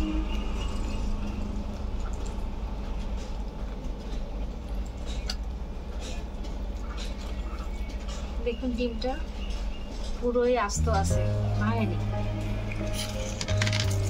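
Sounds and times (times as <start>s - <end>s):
low background rumble: 10.2s - 13.6s.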